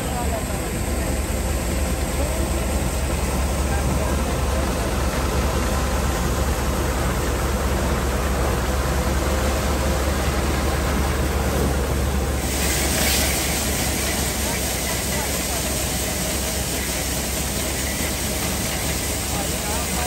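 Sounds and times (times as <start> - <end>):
bright hiss: 12.3 - 20.0.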